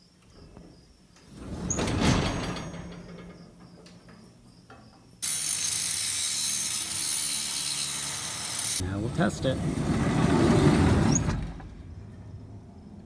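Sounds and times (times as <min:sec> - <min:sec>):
angle grinder grinding steel: 0:05.2 - 0:08.8.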